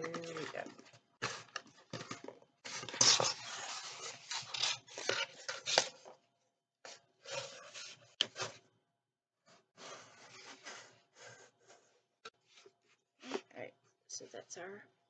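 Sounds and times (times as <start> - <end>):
cardboard scraping: 0.0 - 6.1.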